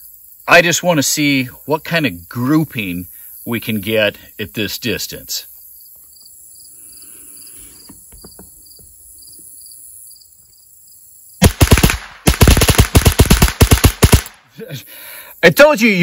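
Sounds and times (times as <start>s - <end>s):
rapid rifle shots: 11.4s - 14.5s.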